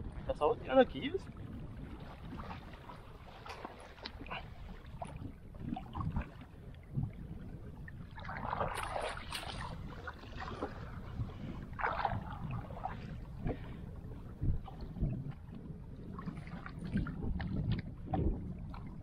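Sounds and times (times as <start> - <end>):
water lapping against boat hull: 0.0 - 19.0
wind on microphone: 0.0 - 19.0
water splashing: 7.8 - 15.4.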